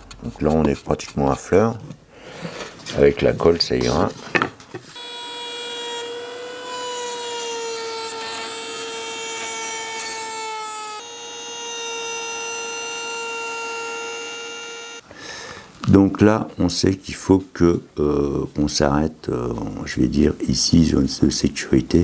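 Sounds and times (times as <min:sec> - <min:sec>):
wood router whining: 0:04.9 - 0:15.1.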